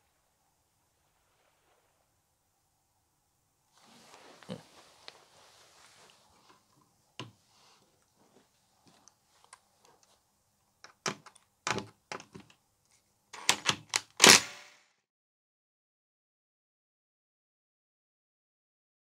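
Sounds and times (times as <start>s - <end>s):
clicks and knocks: 10.8s - 12.6s.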